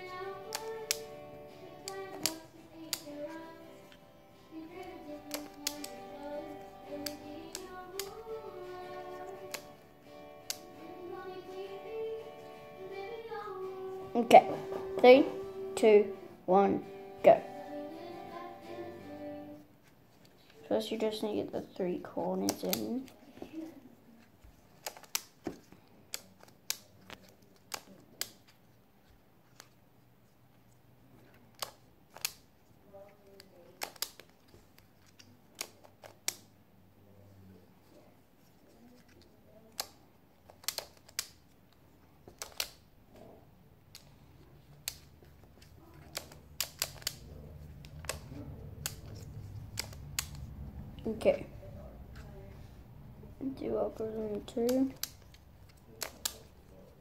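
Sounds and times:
plastic puzzle pieces clicking: 0.5s - 1.1s, 1.8s - 4.0s, 5.1s - 8.2s, 9.1s - 9.8s, 22.3s - 23.2s, 24.5s - 28.5s, 31.2s - 32.5s, 33.3s - 36.5s, 39.2s - 41.5s, 42.2s - 42.9s, 43.9s - 50.5s, 54.6s - 56.5s.

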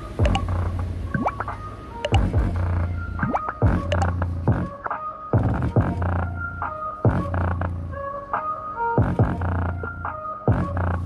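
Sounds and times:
bass-heavy music through subwoofer: 0.0s - 11.0s.

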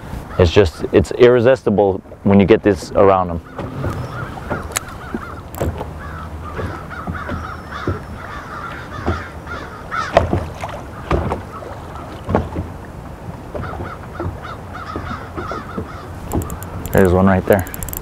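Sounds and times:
waves slapping boat hull: 0.0s - 18.0s
wind and water noise: 0.0s - 18.0s
fishing reel cranking: 16.4s - 18.0s.

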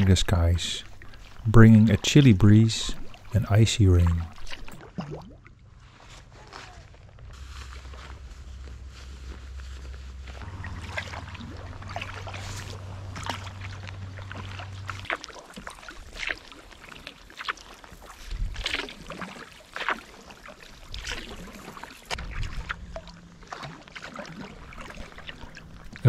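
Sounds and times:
paddle strokes splashing: 0.0s - 6.8s, 7.4s - 26.0s
low steady hum: 0.0s - 17.0s, 22.1s - 26.0s.

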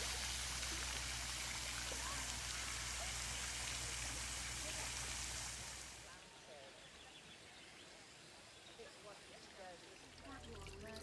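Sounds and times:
splashing water: 0.0s - 6.0s, 9.9s - 11.0s.

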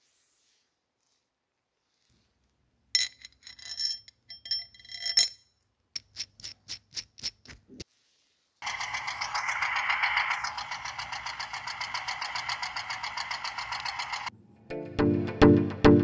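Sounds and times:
electric motor whirring: 8.6s - 14.3s.

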